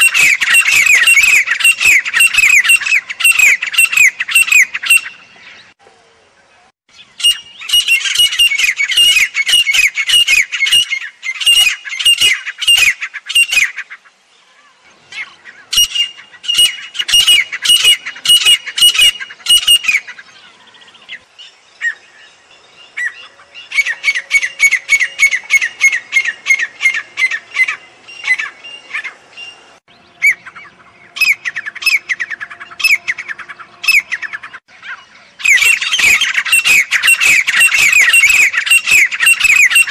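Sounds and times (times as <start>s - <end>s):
francolin calling: 0.0s - 39.9s.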